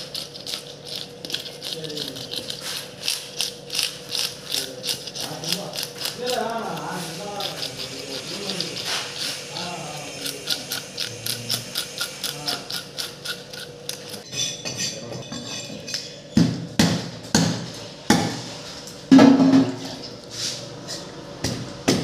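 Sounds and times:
scaler scraping fish scales: 0:00.0 - 0:14.3
knife chopping on wooden block: 0:16.4 - 0:18.4.

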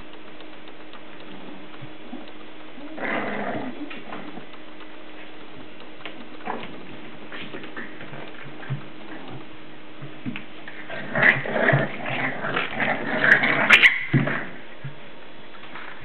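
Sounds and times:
puppies playing: 0:00.8 - 0:16.0.

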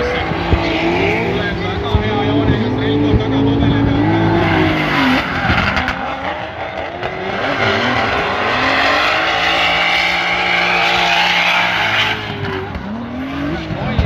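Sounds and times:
car engines revving: 0:00.0 - 0:14.0
tyres squealing on asphalt: 0:03.9 - 0:13.8.

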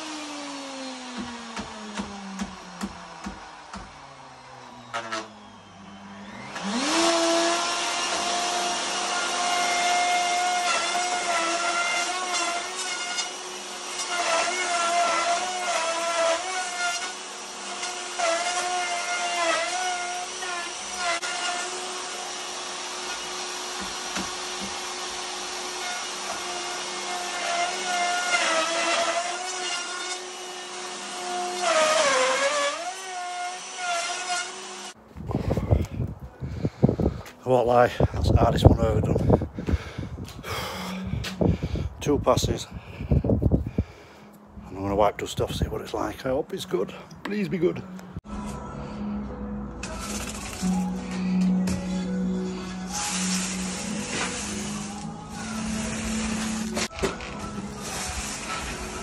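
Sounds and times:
router whining cutting wood: 0:00.0 - 0:35.0, 0:49.9 - 0:59.0.

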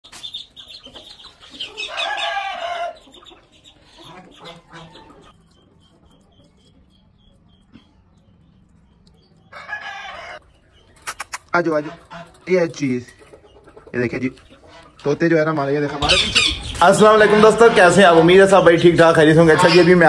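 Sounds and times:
hens clucking: 0:00.1 - 0:20.0
rooster crowing: 0:01.7 - 0:03.0, 0:09.5 - 0:10.4.

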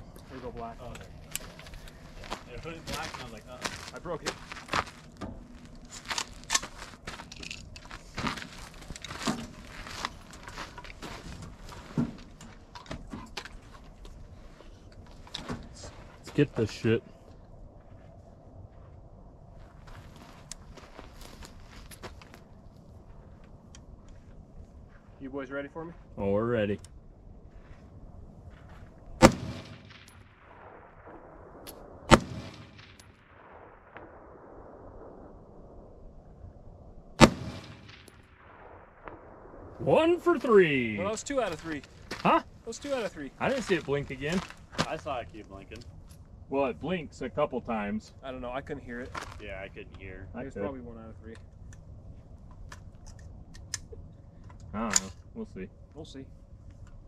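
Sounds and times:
rifle shots with echo: 0:29.2 - 0:35.7, 0:37.2 - 0:39.9.

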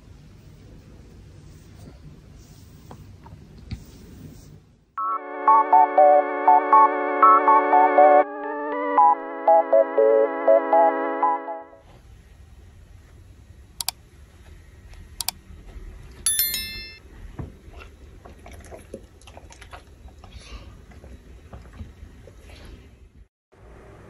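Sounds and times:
faint low room rumble: 0:00.0 - 0:04.9
short bell chime: 0:16.3 - 0:17.0.

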